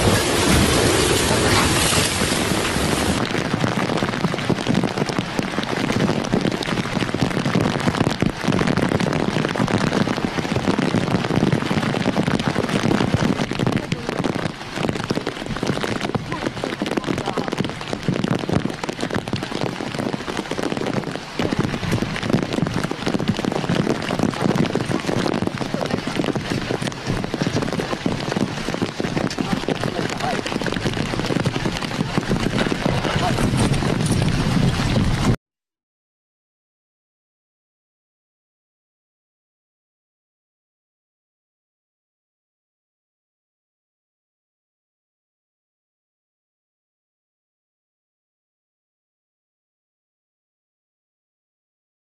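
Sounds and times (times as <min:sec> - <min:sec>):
heavy rain falling: 0:00.0 - 0:35.4.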